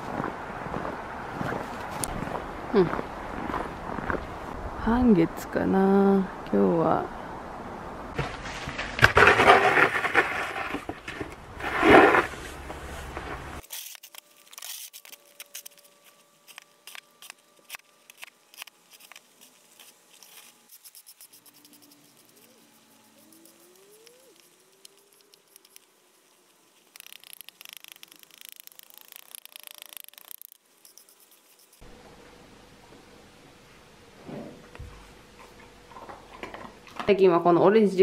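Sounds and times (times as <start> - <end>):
shovel crunching and scraping snow: 8.2 - 25.7.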